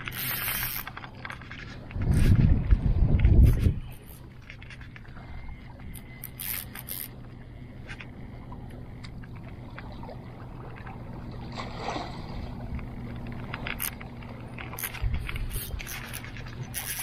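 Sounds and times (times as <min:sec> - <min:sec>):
motor hum: 0:00.0 - 0:17.0.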